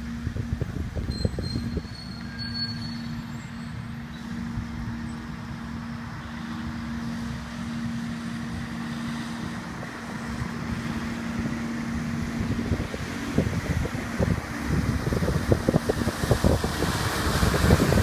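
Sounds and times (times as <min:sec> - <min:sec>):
constant low hum: 0:00.0 - 0:18.0
flowing creek water: 0:00.0 - 0:18.0
wind rumbling on microphone: 0:00.0 - 0:18.0.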